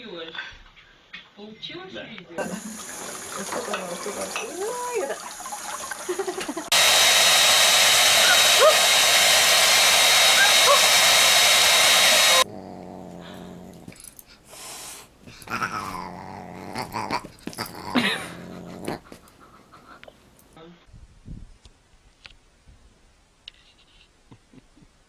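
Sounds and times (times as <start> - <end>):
water running from a tap: 2.4 - 6.8
hair dryer running with whine: 6.5 - 12.5
dog sounds: 8.2 - 8.9, 10.3 - 11.1, 12.1 - 20.2.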